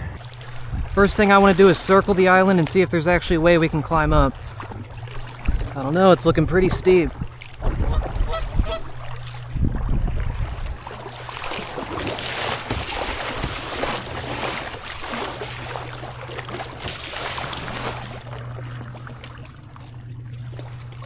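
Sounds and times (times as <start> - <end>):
wind buffeting microphone: 0.0 - 2.1, 3.1 - 12.0
kayak paddle strokes: 0.0 - 21.0
water splashing against hull: 0.0 - 21.0.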